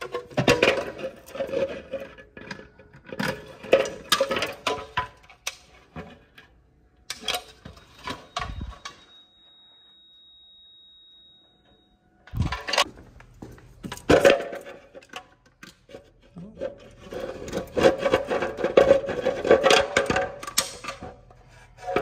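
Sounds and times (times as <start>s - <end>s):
faint high-pitched tone: 7.2s - 12.8s.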